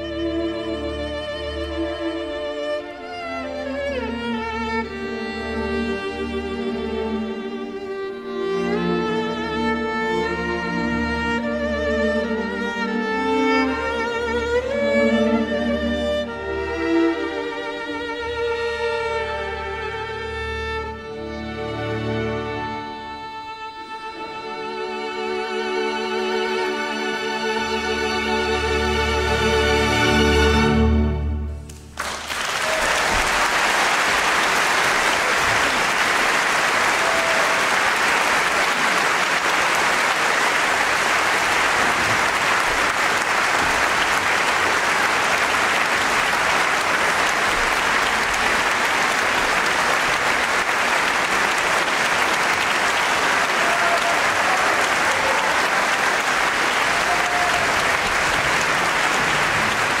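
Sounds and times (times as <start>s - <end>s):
audience applause: 31.7s - 60.0s.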